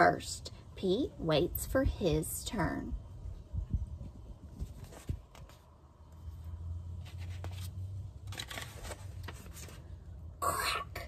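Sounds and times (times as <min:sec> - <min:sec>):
paper rustles: 0:04.6 - 0:05.8, 0:06.9 - 0:10.0
book pages turning: 0:04.6 - 0:10.0.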